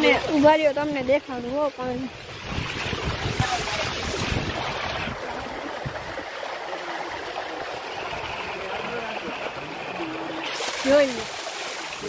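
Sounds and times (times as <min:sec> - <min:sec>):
wind buffeting microphone: 0:02.2 - 0:06.3
rainwater splashing down stone steps: 0:02.2 - 0:12.0.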